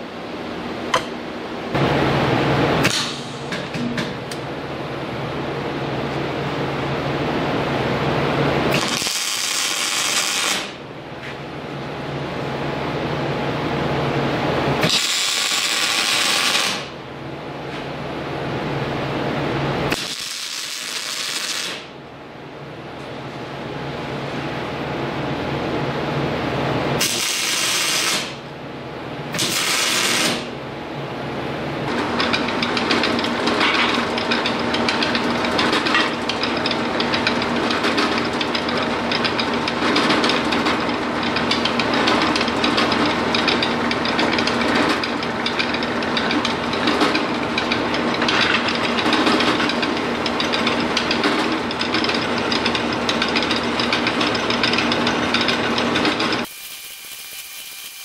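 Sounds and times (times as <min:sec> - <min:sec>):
arc welding crackle: 0:08.7 - 0:10.8, 0:14.8 - 0:16.9, 0:19.9 - 0:21.9, 0:27.0 - 0:28.4, 0:29.4 - 0:30.5, 0:56.5 - 0:58.0
drill press cutting steel: 0:56.4 - 0:58.0.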